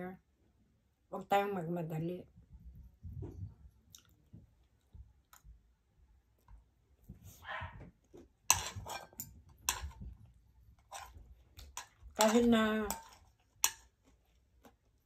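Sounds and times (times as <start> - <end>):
mouth clicks and smacks: 3.8 - 5.5.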